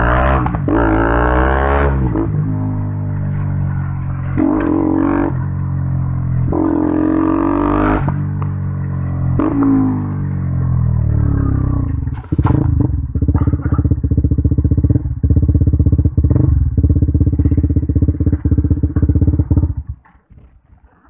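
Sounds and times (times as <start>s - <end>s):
motorcycle engine idling: 10.0s - 20.1s.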